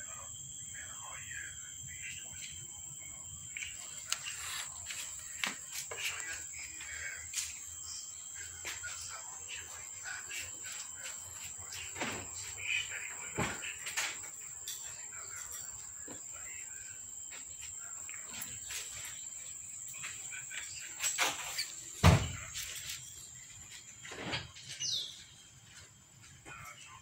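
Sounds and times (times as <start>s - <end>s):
steady high-pitched whine: 0.0s - 27.0s
paws scratching on plastic: 3.8s - 7.1s
thump on plastic box: 22.0s - 22.4s.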